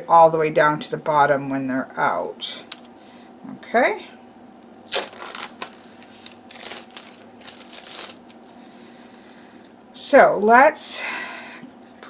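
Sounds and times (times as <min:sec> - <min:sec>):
cards and cardboard rustling: 0:04.9 - 0:08.7.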